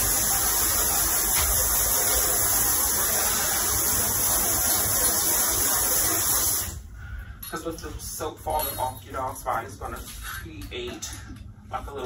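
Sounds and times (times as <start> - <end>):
water spraying into metal tub: 0.0 - 6.8.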